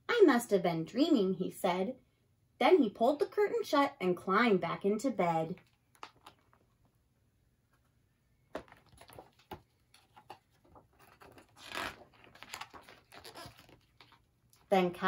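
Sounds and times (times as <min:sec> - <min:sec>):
pages turning: 0:05.6 - 0:06.9, 0:08.5 - 0:14.7.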